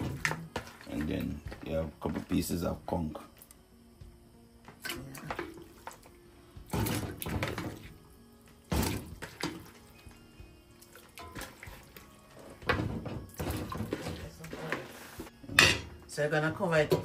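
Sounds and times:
water running into a pot: 8.7s - 14.5s.

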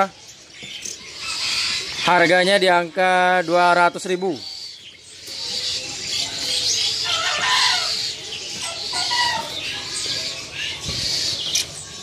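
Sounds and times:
caged birds chirping: 0.0s - 12.0s
low drawn-out bird call: 5.4s - 11.6s.

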